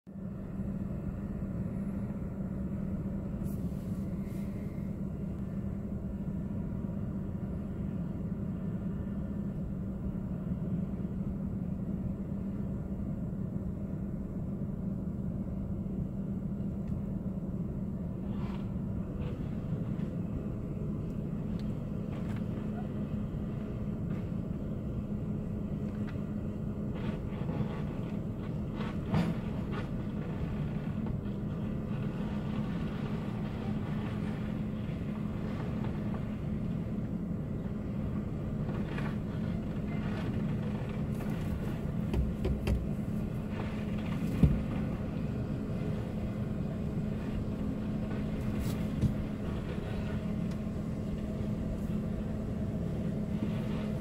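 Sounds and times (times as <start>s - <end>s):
engine drone inside vehicle cab: 0.0s - 54.0s
scattered knocks: 42.1s - 43.0s.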